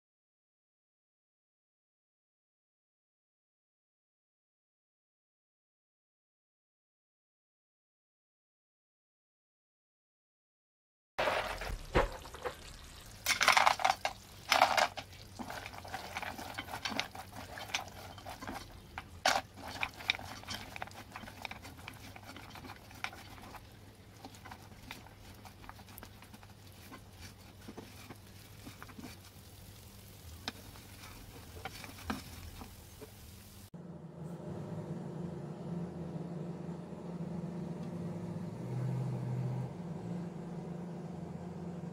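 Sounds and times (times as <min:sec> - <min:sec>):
light sizzle: 0:11.2 - 0:34.5
spatula scraping a pot: 0:14.5 - 0:29.6, 0:30.2 - 0:33.2.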